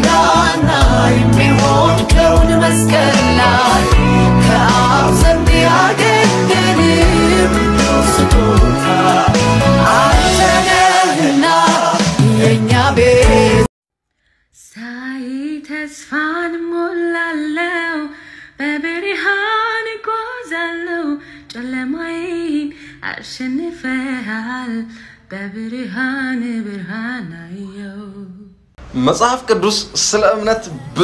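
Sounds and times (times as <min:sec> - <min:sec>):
woman singing: 0:00.0 - 0:13.7, 0:14.6 - 0:28.6.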